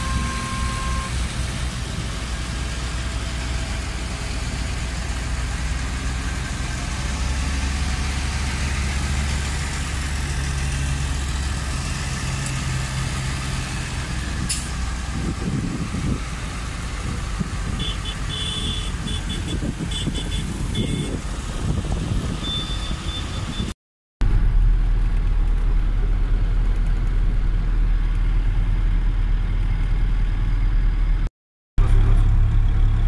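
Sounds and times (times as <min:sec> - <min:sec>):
short high beeps: 0:00.0 - 0:01.1, 0:22.4 - 0:23.7
rumbling road noise: 0:00.0 - 0:33.0
tractor diesel engines droning: 0:00.0 - 0:33.0.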